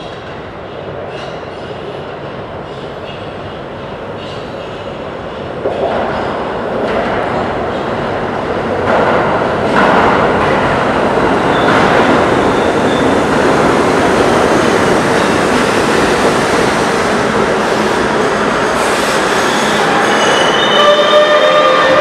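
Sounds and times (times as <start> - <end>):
subway train wheels rumbling: 0.0 - 22.0
high wheel squeal: 18.8 - 22.0.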